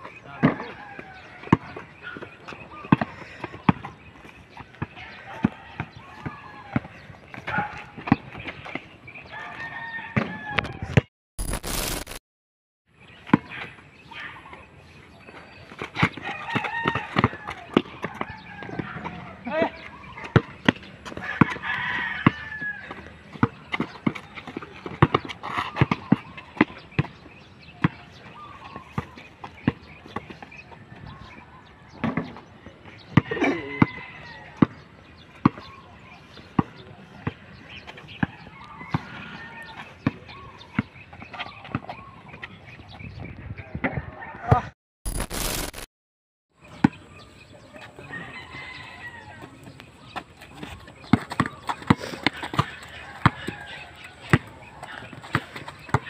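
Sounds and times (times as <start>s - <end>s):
basketball bouncing on concrete: 0.4s - 4.0s, 10.0s - 11.1s, 15.9s - 19.2s, 20.1s - 30.7s, 33.1s - 35.7s, 40.0s - 42.5s, 50.2s - 56.0s
rooster crowing: 9.3s - 10.9s, 21.2s - 23.0s, 48.0s - 49.5s
loud burst of noise: 11.4s - 12.2s, 45.1s - 45.9s.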